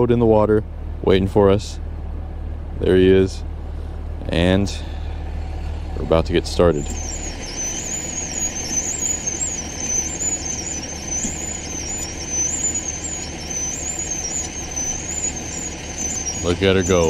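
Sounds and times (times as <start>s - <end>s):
high wavering squeal: 4.8s - 17.0s
winch running: 5.5s - 17.0s.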